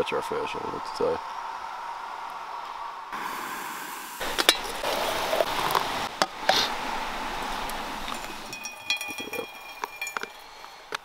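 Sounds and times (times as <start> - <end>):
steady hiss: 0.0 - 8.6
enamelware clinking: 8.1 - 10.8.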